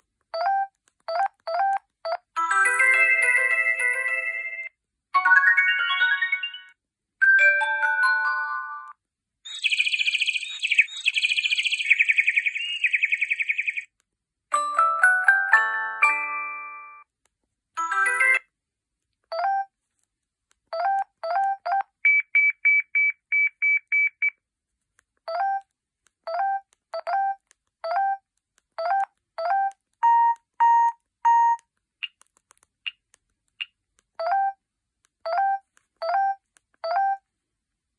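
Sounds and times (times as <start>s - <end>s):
ringtone: 0.4s - 13.1s, 14.5s - 17.1s, 17.8s - 18.5s, 19.3s - 19.7s, 20.7s - 24.1s, 26.3s - 28.2s, 28.8s - 31.6s, 35.3s - 37.3s
phone key beeps: 20.7s - 24.4s, 26.3s - 28.2s, 28.8s - 32.2s, 35.2s - 37.3s.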